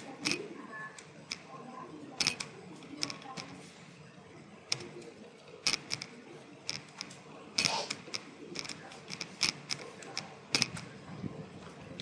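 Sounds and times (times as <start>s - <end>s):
computer keyboard typing: 0.0s - 1.6s, 2.2s - 3.6s, 4.7s - 10.9s.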